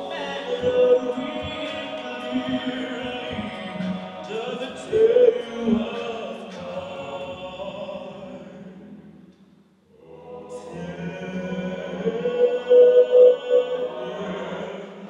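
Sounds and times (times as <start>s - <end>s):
solo male voice singing: 0.0s - 8.6s
male a cappella group singing: 0.0s - 9.0s, 9.9s - 15.0s.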